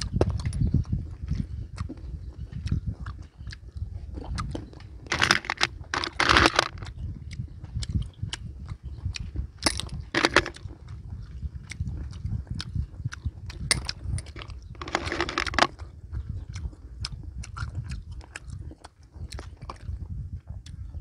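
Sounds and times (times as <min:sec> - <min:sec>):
man chewing and smacking: 0:00.0 - 0:21.0
snail shells clicking on metal tray: 0:05.1 - 0:06.9, 0:09.6 - 0:10.6, 0:13.7 - 0:15.7.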